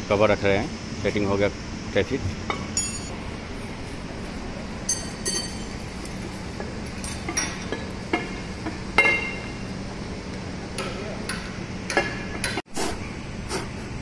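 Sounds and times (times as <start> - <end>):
steady low hum: 0.0 - 14.0
metal cover clinking and knocking: 2.8 - 3.1.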